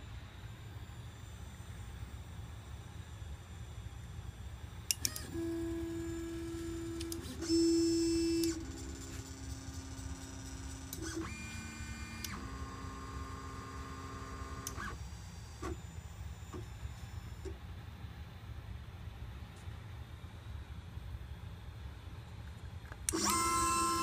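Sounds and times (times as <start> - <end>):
stepper motors whining: 4.9 - 17.5, 23.1 - 24.0.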